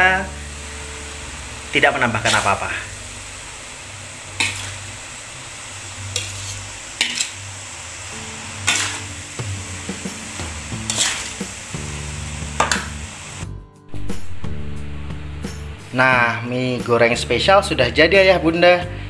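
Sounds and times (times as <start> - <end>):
stir-fry sizzling in a wok: 0.0 - 15.8
background music: 0.0 - 19.0
metal spatula scraping a wok: 2.2 - 2.6, 4.3 - 5.0, 6.0 - 7.6, 8.2 - 9.2, 9.8 - 11.7, 12.6 - 13.0.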